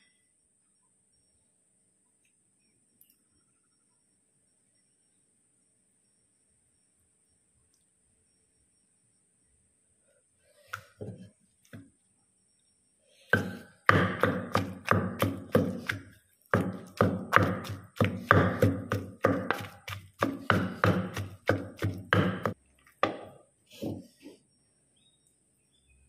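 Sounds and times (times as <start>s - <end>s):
wooden pestle pounding in mortar: 13.3s - 23.3s.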